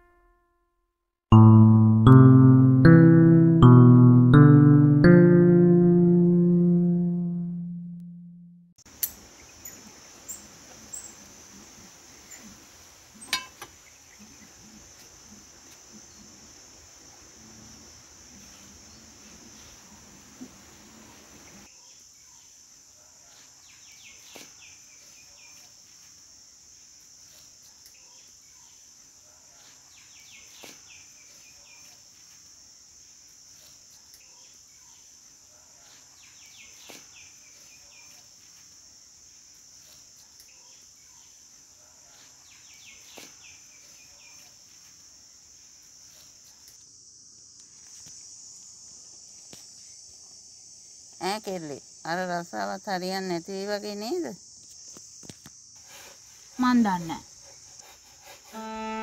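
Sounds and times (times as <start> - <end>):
high-pitched insect drone: 58.5 - 59.0.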